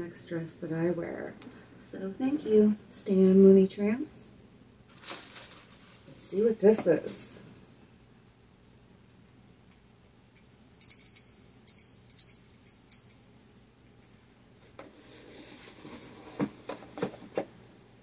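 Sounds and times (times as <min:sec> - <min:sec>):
small hand bell ringing: 0:10.1 - 0:14.2.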